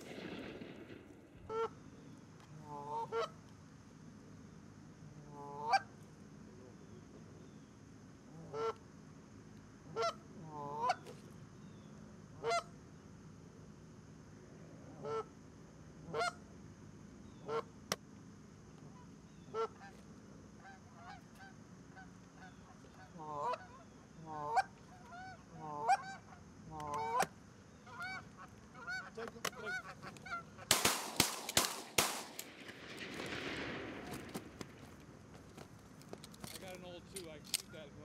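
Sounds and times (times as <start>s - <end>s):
shotgun shots: 0.0s - 1.6s, 30.7s - 35.1s
geese honking: 2.5s - 3.4s, 5.3s - 5.9s, 9.9s - 11.1s, 18.9s - 20.0s, 20.6s - 30.9s.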